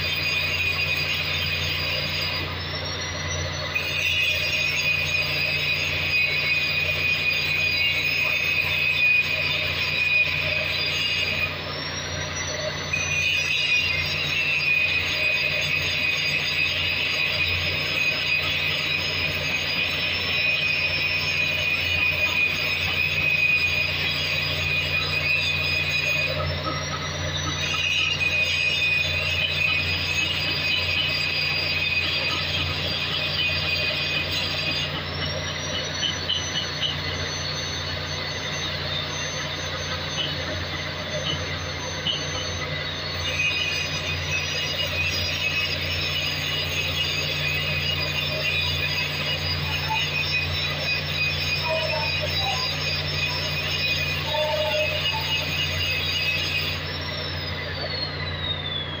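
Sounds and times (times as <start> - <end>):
angle grinder grinding metal: 12.4 - 58.2.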